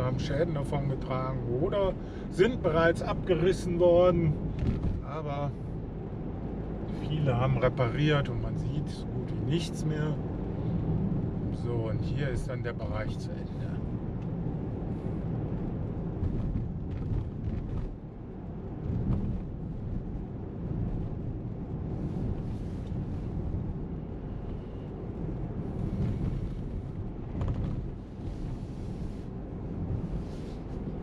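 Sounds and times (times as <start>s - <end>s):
car engine and tyres rumbling: 0.0s - 31.0s.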